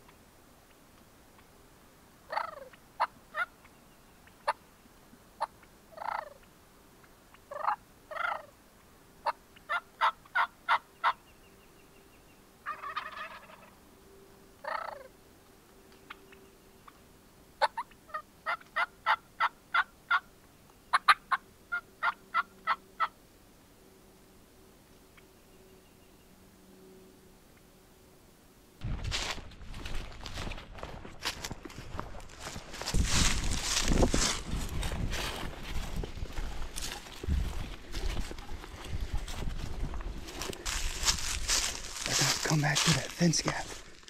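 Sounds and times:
turkey yelps: 2.3s - 3.5s, 5.4s - 6.4s, 7.5s - 8.5s, 9.2s - 11.2s, 12.6s - 13.7s, 14.6s - 15.1s, 17.6s - 20.3s, 20.9s - 23.2s
turkeys gobbling: 2.3s - 3.5s, 5.4s - 6.4s, 7.5s - 8.5s, 9.2s - 11.2s, 12.6s - 13.8s, 14.6s - 15.1s, 17.6s - 20.3s, 20.9s - 23.2s.

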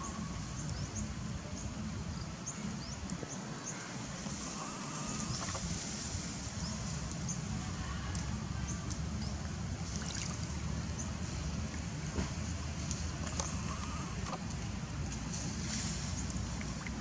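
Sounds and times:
steady low rumble: 0.0s - 17.0s
water splashes: 3.1s - 17.0s
water sloshing: 9.2s - 17.0s.

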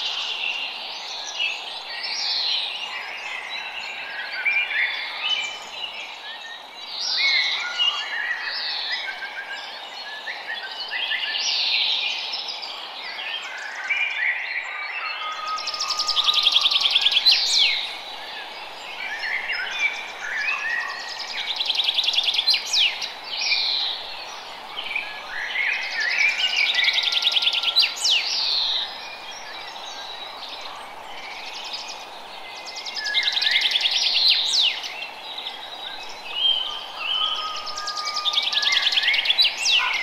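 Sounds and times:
songbirds singing: 0.0s - 40.0s
running water hiss: 15.6s - 40.0s.

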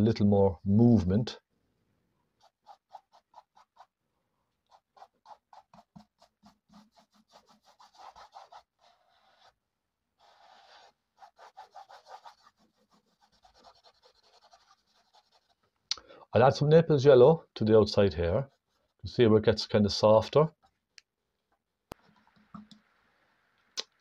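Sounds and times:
paintbrush scratching on canvas: 2.3s - 4.0s, 4.6s - 9.6s, 10.2s - 15.8s, 18.2s - 19.3s.

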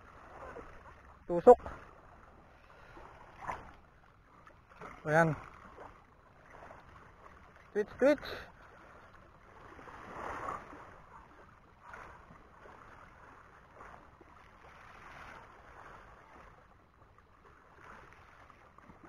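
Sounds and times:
waves lapping against shore: 0.0s - 19.0s
wind: 0.0s - 19.0s.

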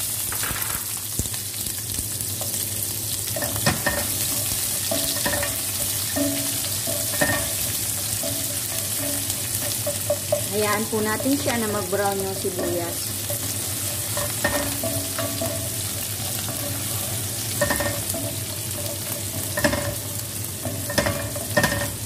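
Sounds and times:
onions sizzling in hot oil: 0.0s - 22.0s
spoon scraping and clicking on pot: 3.4s - 10.6s, 12.5s - 22.0s.

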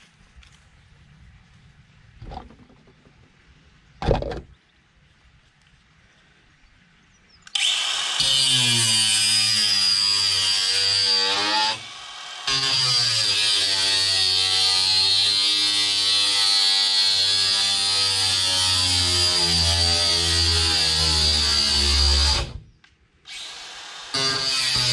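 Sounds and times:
power tool cutting cable: 7.5s - 22.6s, 23.3s - 24.9s.

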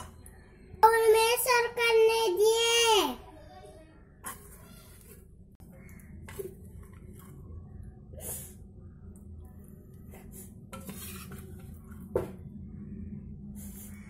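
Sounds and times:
low steady hum: 0.0s - 0.8s, 3.8s - 14.0s
spoon scraping and tapping: 10.8s - 11.9s.

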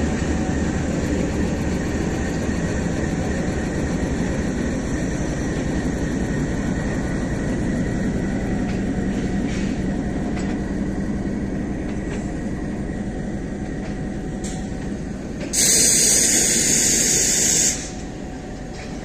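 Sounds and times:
train wheels rumbling on rails: 0.0s - 19.0s
loud hiss: 15.6s - 18.0s.

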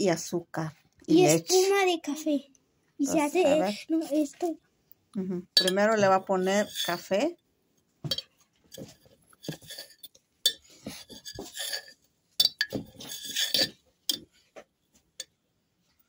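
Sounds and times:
spoon clinking against container: 5.6s - 7.0s, 8.1s - 14.3s.

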